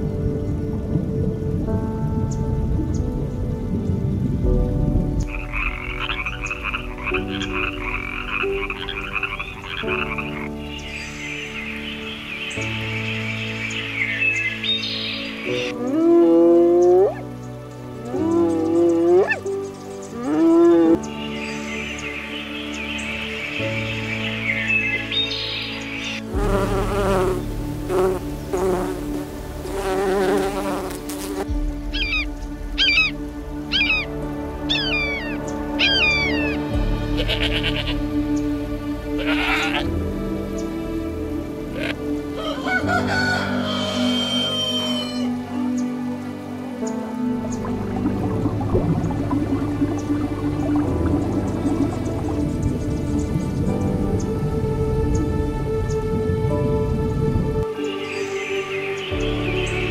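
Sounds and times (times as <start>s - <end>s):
rain and thunder: 0.0s - 7.0s
background music with chords: 0.0s - 59.9s
frog croaking: 5.2s - 17.4s, 31.9s - 38.0s, 39.2s - 39.8s
flying insect buzzing: 26.0s - 38.4s.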